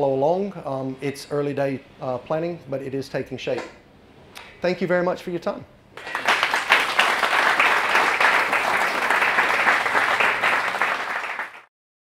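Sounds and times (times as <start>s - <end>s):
audience applauding: 6.0s - 11.7s.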